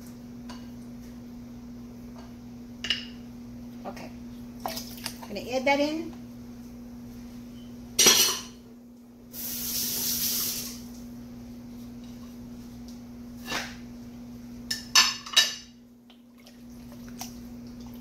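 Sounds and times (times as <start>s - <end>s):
dishes and utensils clanking: 8.0s - 8.6s, 14.7s - 15.8s
hiss: 9.3s - 10.8s.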